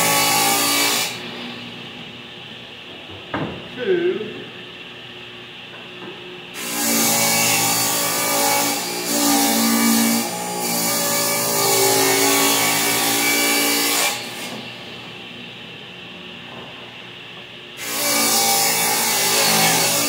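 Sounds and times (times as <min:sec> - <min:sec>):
table saw ripping a board: 0:06.6 - 0:14.6, 0:17.8 - 0:20.0.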